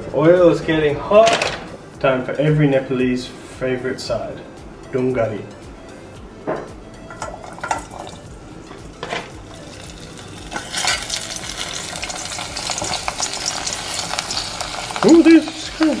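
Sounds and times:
oil sizzling: 7.0s - 16.0s.

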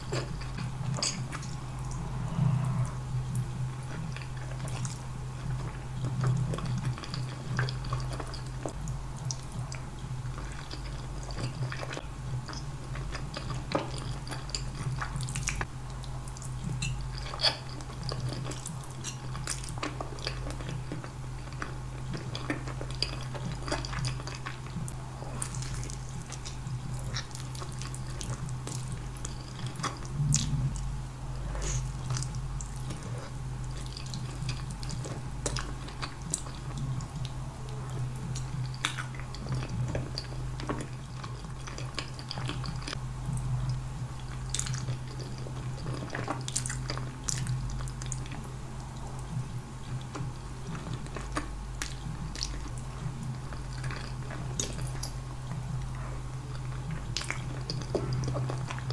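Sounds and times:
low hum: 0.0s - 58.9s
wet chewing and slurping: 16.3s - 58.9s.

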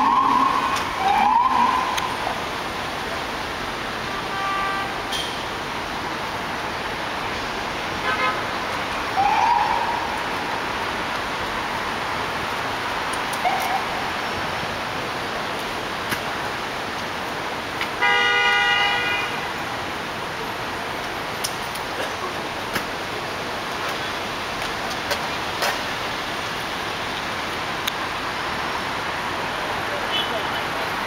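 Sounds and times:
city street noise: 0.0s - 31.0s
vehicle horn honk: 4.1s - 5.1s, 18.0s - 19.4s.

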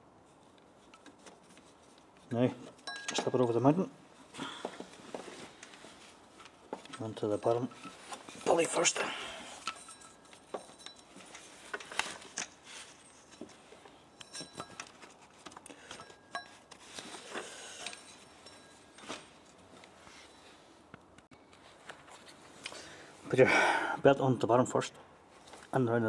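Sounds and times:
rustling of belt and sleeve: 0.2s - 2.8s, 3.6s - 23.2s.

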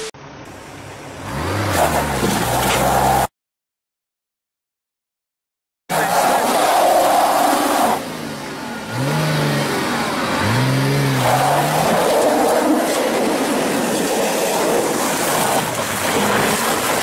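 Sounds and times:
car engine revving: 5.9s - 15.4s
wheel spinning on wet tarmac: 9.0s - 17.0s.

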